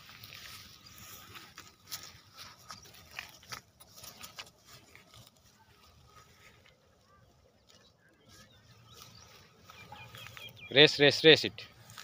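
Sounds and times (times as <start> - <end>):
rustling of leafy plants: 0.0 - 12.0.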